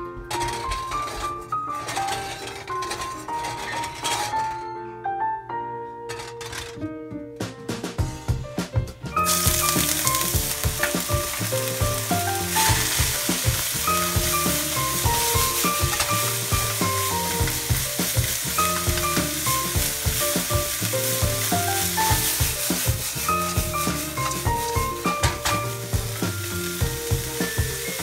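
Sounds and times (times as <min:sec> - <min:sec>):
vegetables sizzling in hot oil: 0:09.2 - 0:28.0
chopsticks clattering in wok: 0:09.3 - 0:28.0.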